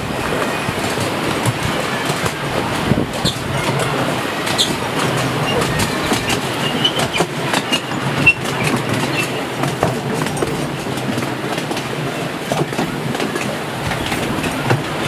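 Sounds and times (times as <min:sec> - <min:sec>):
train wheels rumbling: 0:00.0 - 0:15.0
wheels clicking over rail joints: 0:00.0 - 0:15.0
high wheel squeals: 0:03.2 - 0:09.6.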